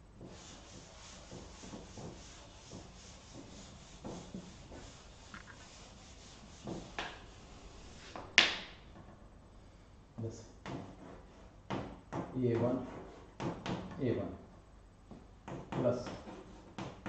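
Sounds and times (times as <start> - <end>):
duster wiping blackboard: 0.0 - 9.1, 15.8 - 17.0.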